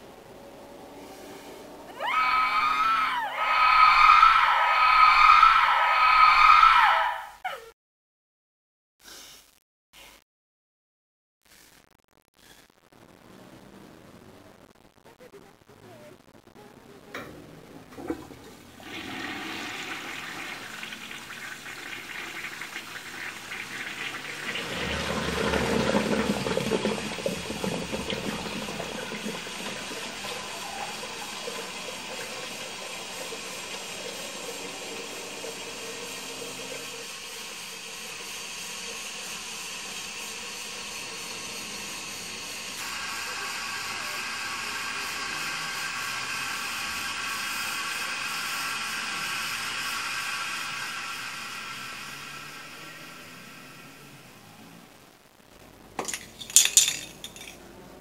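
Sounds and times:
toilet flushing water rush: 1.6s - 7.2s, 17.2s - 54.8s
toilet flush clicks: 17.2s - 52.9s
cistern refilling hiss: 17.9s - 54.8s.

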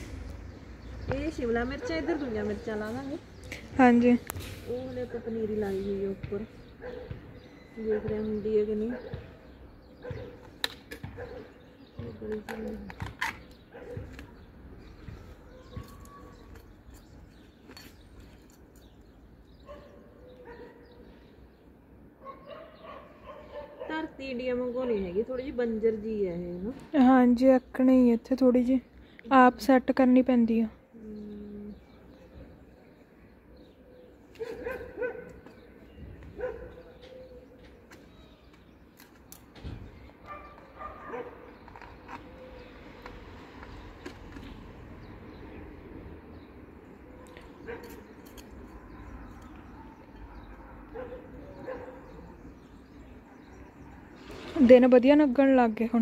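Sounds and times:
dog barking: 6.8s - 7.2s, 11.1s - 11.5s, 13.7s - 14.1s, 19.6s - 20.9s, 22.2s - 24.0s, 34.4s - 35.4s, 36.4s - 37.0s, 40.3s - 41.5s, 47.6s - 48.0s, 50.6s - 52.3s
trowel scraping garden soil: 54.1s - 55.0s.

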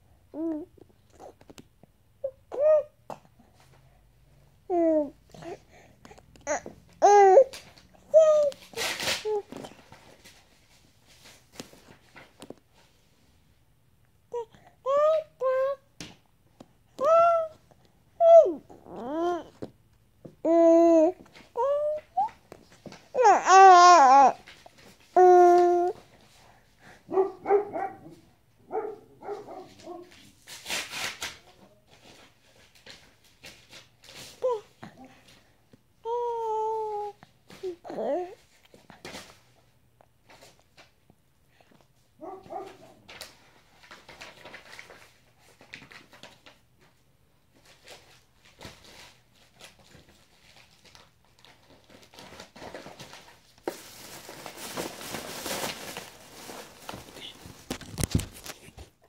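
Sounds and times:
infant babbling: 4.7s - 5.8s, 6.4s - 8.6s, 17.0s - 17.6s, 18.2s - 19.7s, 20.4s - 22.3s, 23.1s - 24.4s, 25.2s - 26.0s, 36.0s - 38.4s.

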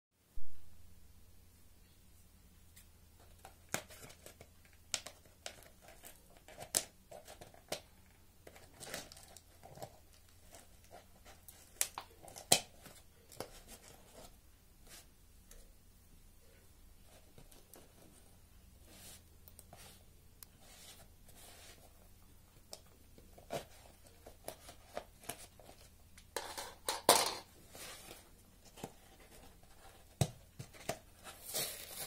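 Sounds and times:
wrapping crinkling: 8.4s - 14.3s, 27.7s - 32.0s.

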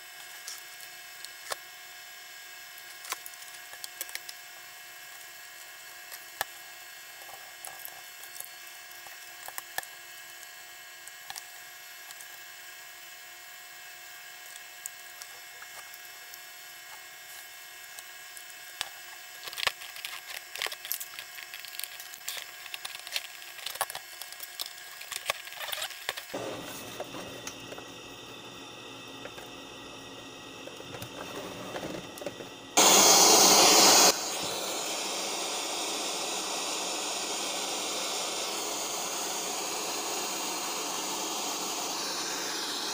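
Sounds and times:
radio static hiss: 18.7s - 28.0s, 31.0s - 42.9s.

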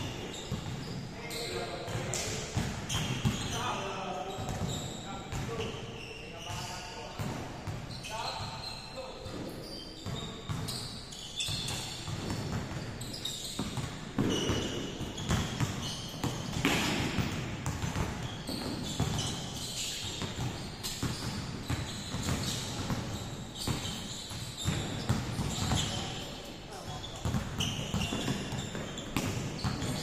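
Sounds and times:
basketballs bouncing on hardwood: 0.1s - 3.6s, 4.4s - 5.7s, 7.2s - 7.8s, 11.5s - 26.2s, 26.9s - 30.0s.

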